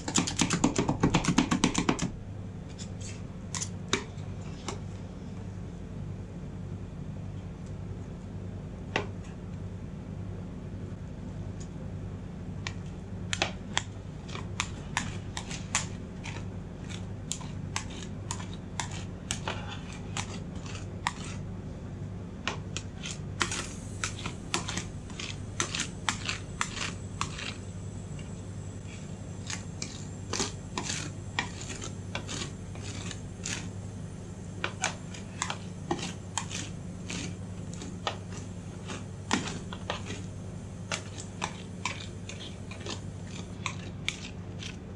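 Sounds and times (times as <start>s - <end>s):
steady low hum: 0.0s - 44.9s.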